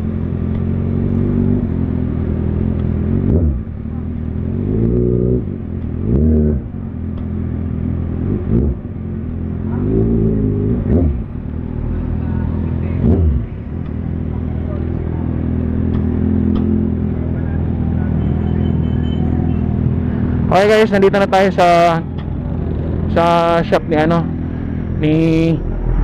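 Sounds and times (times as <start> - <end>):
motorcycle engine revving: 0.0 - 18.2.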